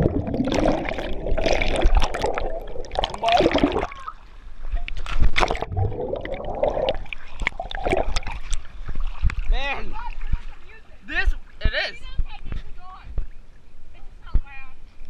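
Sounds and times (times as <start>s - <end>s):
people splashing into pool: 0.0s - 4.2s
water churning and bubbling: 0.0s - 10.8s.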